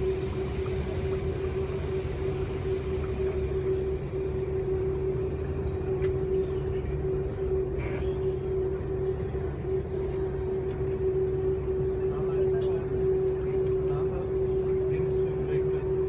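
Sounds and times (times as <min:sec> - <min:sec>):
vehicle engine drone: 0:00.0 - 0:16.0.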